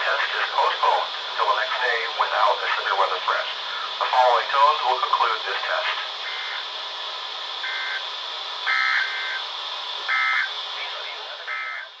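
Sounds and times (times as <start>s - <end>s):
radio hiss: 0.0s - 12.0s
harsh two-tone data bursts: 3.7s - 6.7s, 7.6s - 9.5s, 10.1s - 10.6s, 11.4s - 12.0s.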